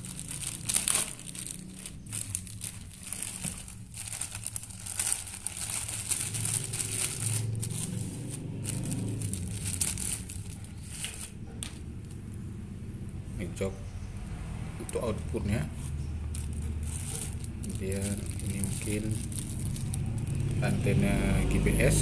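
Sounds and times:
plastic bag crinkling: 0.0 - 11.4, 14.9 - 20.8.

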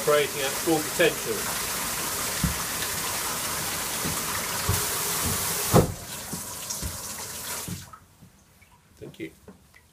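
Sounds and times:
shower and taps running: 0.0 - 8.9
low thuds from taps: 2.3 - 8.4
knock: 4.0 - 7.0.

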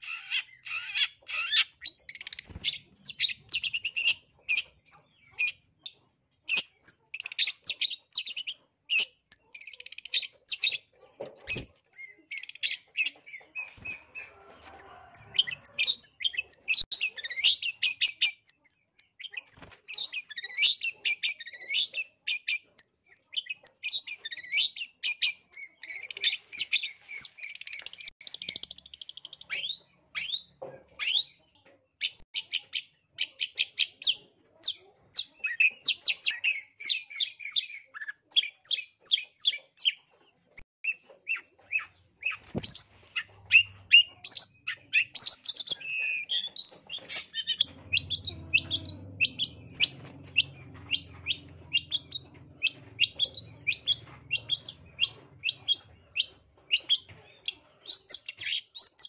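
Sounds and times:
bird singing sharp chirps and trills: 0.0 - 14.3, 40.8 - 59.0.

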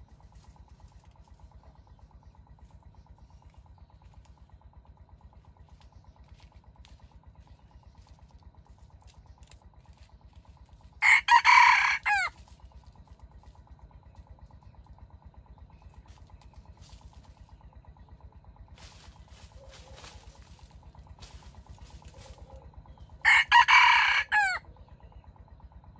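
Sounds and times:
faint steady hum: 0.0 - 25.9
rooster crowing: 11.0 - 12.4, 23.2 - 24.7.

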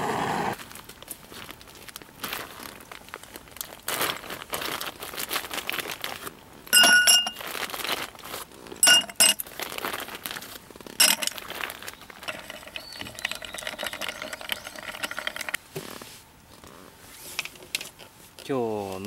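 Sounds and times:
ice cubes clinking in glass: 6.8 - 7.4, 8.8 - 9.4, 11.0 - 15.6
ice stirred in glass: 11.0 - 15.6.

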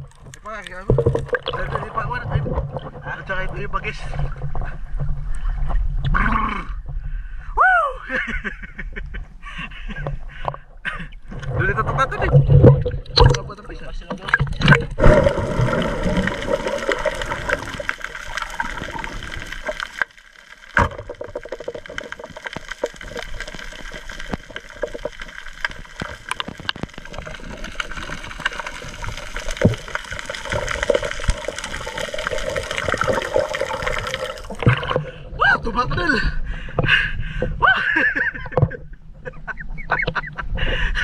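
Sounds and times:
fine crackling clicks: 0.0 - 1.8, 15.6 - 34.8
underwater rush of moving water: 0.0 - 6.0, 11.2 - 35.4.

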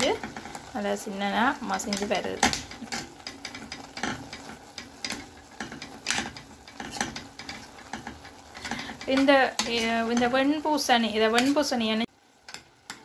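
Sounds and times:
spoon scraping and clinking pot: 1.8 - 10.5.

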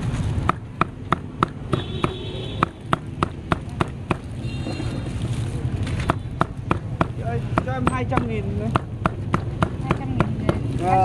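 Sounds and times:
cleaver chopping on wooden block: 0.4 - 4.3, 6.1 - 10.7.

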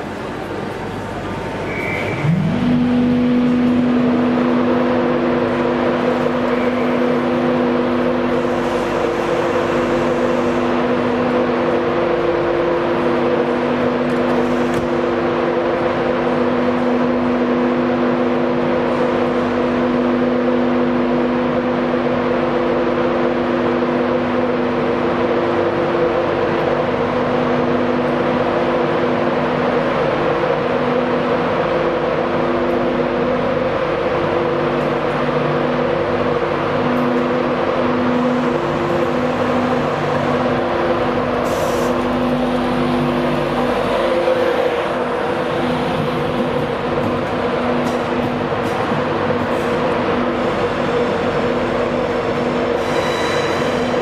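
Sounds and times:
electrical hum tones: 0.0 - 19.5
electric train rumbling: 0.0 - 54.0.

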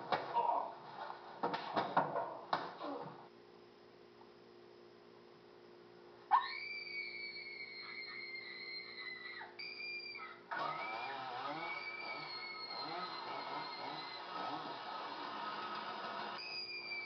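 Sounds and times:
faint electrical hum: 0.0 - 17.0
long high scream: 6.3 - 17.0.

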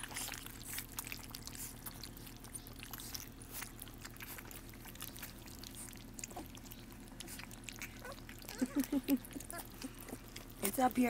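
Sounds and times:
puppies lapping from steel bowl: 0.0 - 11.0.

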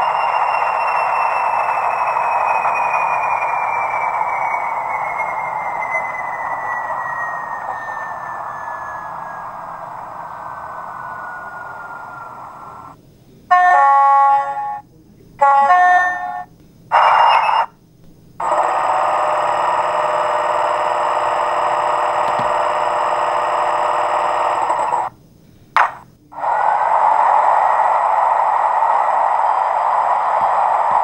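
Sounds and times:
locomotive horn blasts: 13.5 - 14.8, 15.4 - 17.4
cooling fan running: 17.8 - 31.0
air compressor running: 18.4 - 25.1, 26.3 - 31.0.

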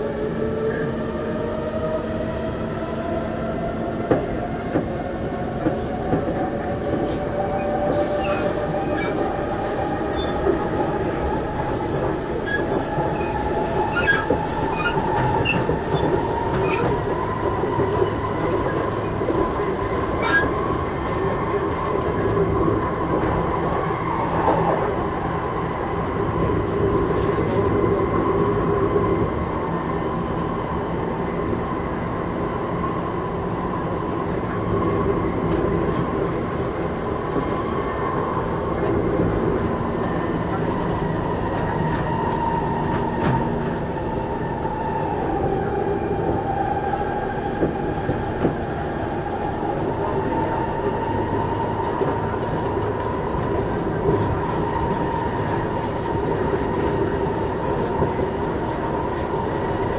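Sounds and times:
train wheels rumbling: 1.0 - 30.1, 33.6 - 59.9
wheels squealing on rails: 6.8 - 22.4, 49.7 - 59.9.

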